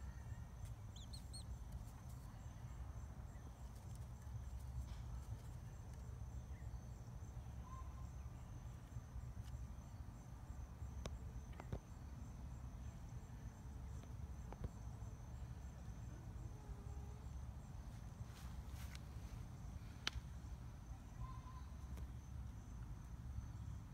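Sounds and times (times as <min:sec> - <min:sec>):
insects trilling: 0:00.0 - 0:23.9
faint ticks: 0:20.0 - 0:20.3.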